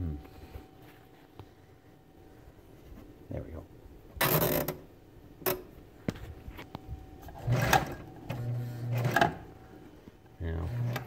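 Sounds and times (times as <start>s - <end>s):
sewing machine whirring: 7.2s - 9.6s, 10.6s - 11.0s.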